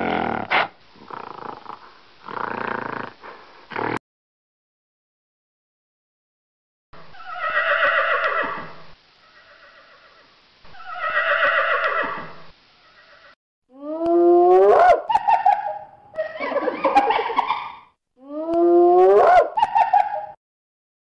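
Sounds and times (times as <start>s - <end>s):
horse whinnying: 7.1s - 8.7s, 10.8s - 12.4s.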